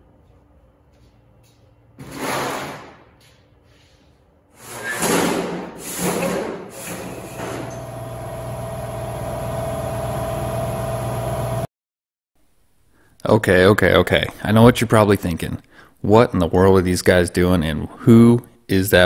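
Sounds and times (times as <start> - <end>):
machine hum: 6.8 - 11.7.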